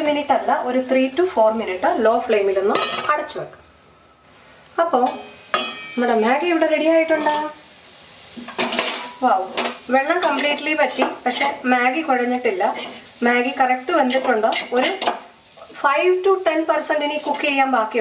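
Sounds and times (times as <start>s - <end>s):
light sizzle: 0.0s - 18.0s
metal spoon scraping a pan: 5.0s - 6.1s, 7.1s - 7.6s, 8.4s - 11.7s, 12.3s - 13.2s, 14.0s - 15.3s, 17.0s - 17.7s.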